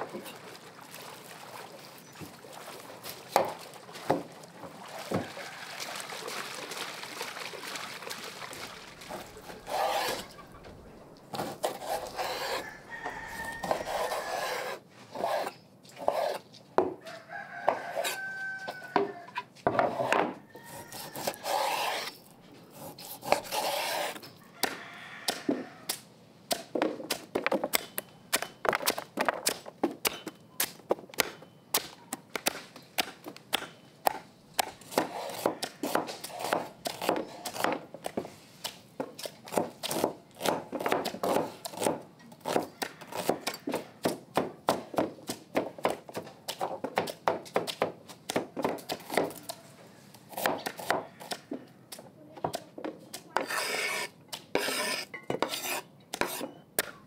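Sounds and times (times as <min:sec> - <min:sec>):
chickens clucking: 0:08.9 - 0:11.3.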